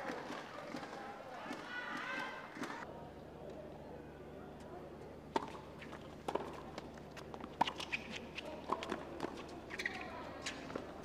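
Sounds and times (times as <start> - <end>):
shoe squeaks: 9.7 - 10.7.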